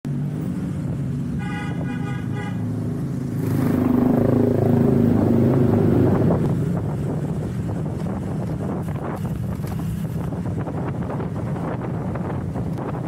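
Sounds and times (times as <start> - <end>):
motorbike passing by: 0.4 - 10.2
vehicle horn tooting: 1.4 - 2.7.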